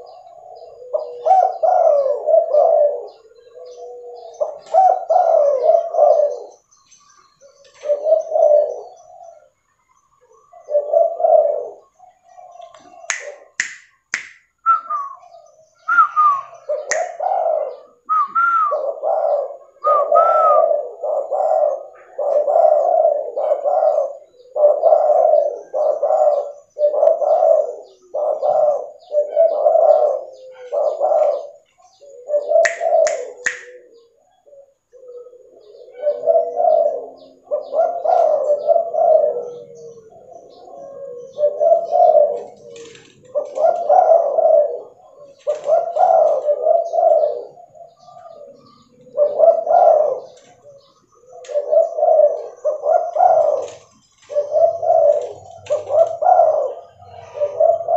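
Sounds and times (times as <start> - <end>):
dove cooing: 0.0 - 57.9
sharp clicks: 12.7 - 14.5, 32.7 - 33.8.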